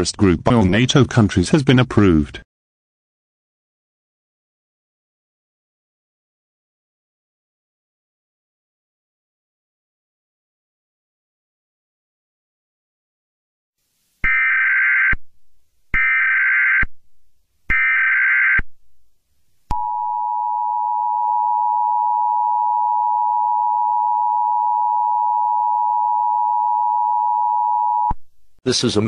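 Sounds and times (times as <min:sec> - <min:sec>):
steady dual-tone alert signal: 0:14.2 - 0:15.2, 0:16.0 - 0:16.9, 0:17.7 - 0:18.6, 0:19.7 - 0:28.2.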